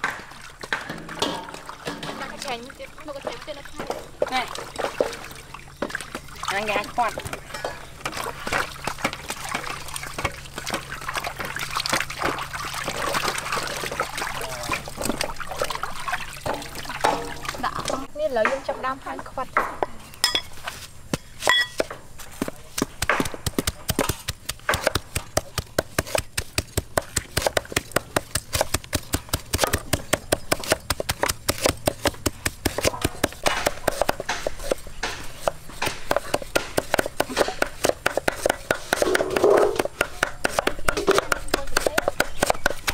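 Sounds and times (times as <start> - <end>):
water splashing in metal basin: 0.0 - 18.1
water dripping: 0.0 - 18.5
cleaver chopping on wooden board: 21.1 - 42.9.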